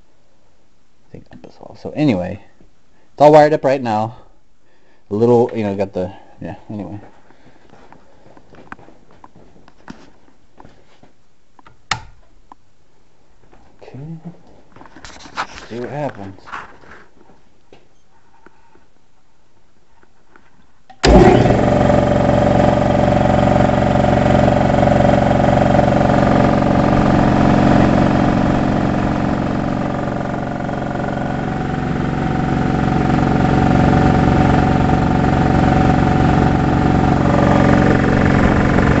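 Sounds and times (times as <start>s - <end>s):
air compressor running: 21.0s - 39.0s.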